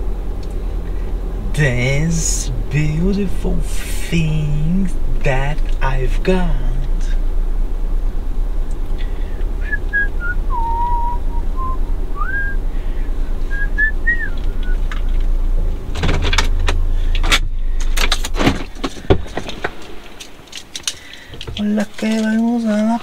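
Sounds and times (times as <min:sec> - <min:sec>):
low rumble of a car: 0:00.0 - 0:23.0
person whistling a tune: 0:09.6 - 0:12.6, 0:13.5 - 0:14.8
clicks and knocks of handling: 0:16.0 - 0:22.9.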